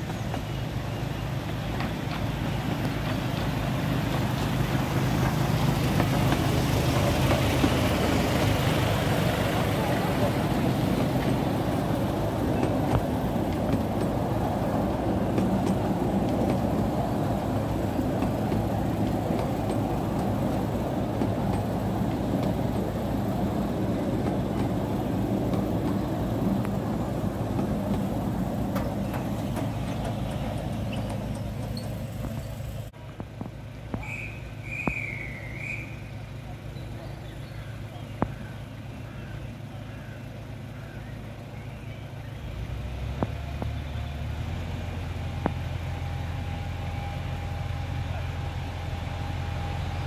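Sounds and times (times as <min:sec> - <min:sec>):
train carriages rumbling on track: 0:00.0 - 0:39.6
train engine hum: 0:00.0 - 0:50.0.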